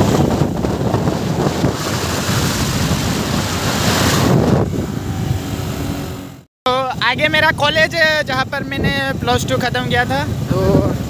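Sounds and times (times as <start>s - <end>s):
motorcycle engine and road rumble: 0.0s - 6.5s
wind rushing over microphone: 0.0s - 11.0s.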